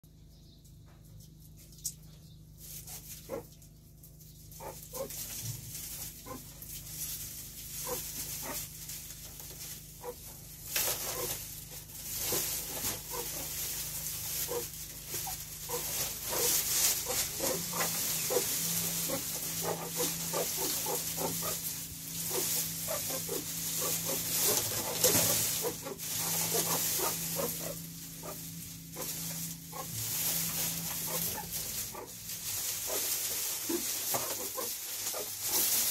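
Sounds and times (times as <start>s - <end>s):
rustling straw: 1.1s - 35.9s
meerkats calling: 4.5s - 5.2s, 7.8s - 8.6s, 12.2s - 35.8s.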